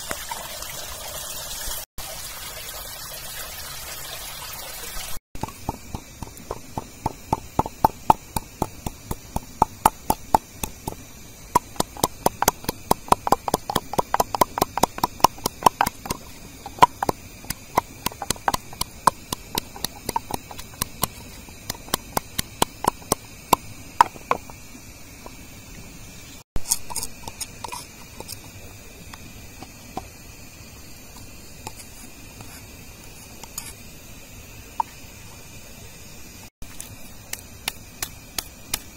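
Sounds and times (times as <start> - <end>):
pestle pounding in wooden mortar: 5.4 - 24.6, 37.3 - 38.9.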